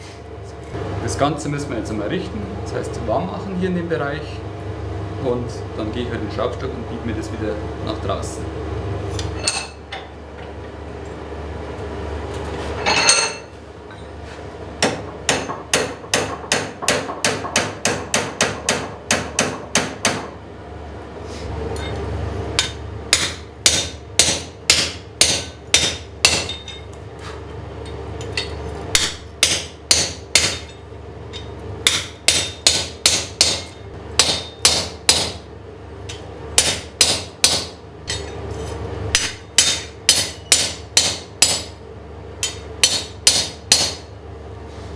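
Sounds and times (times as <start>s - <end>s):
hammer striking steel bar: 14.8s - 20.3s, 22.6s - 26.8s, 28.9s - 30.8s, 31.4s - 35.4s, 36.1s - 38.4s, 39.1s - 41.7s, 42.4s - 44.0s.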